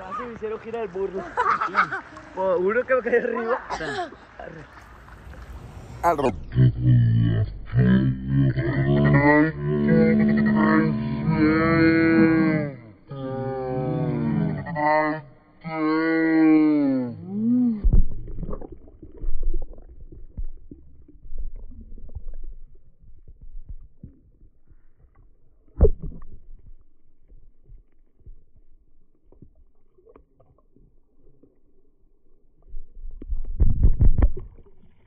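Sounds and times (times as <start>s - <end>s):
bubbling: 4.1s - 6.5s, 17.3s - 35.0s
underwater water rumbling: 4.6s - 14.8s, 17.3s - 35.0s
dull underwater knocks: 17.8s - 28.6s, 33.1s - 34.9s.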